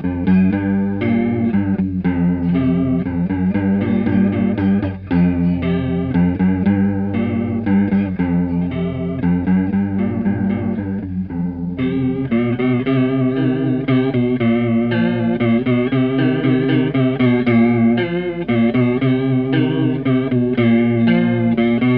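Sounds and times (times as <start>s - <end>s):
electric guitar riff with chorus: 0.0s - 21.9s.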